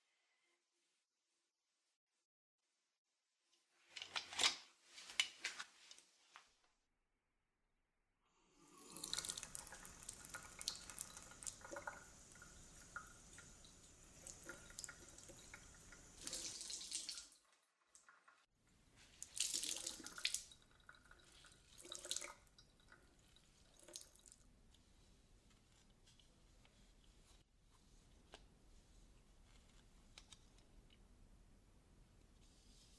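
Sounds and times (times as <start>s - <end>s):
tap water running into sink: 8.8s - 17.4s, 19.3s - 23.0s.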